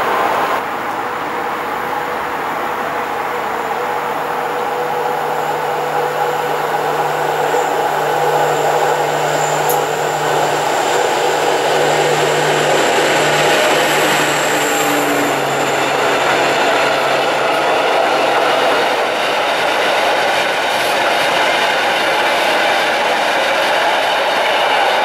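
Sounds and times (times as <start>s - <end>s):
diesel locomotive engine drone: 0.0s - 25.0s
rail rumble: 0.0s - 25.0s.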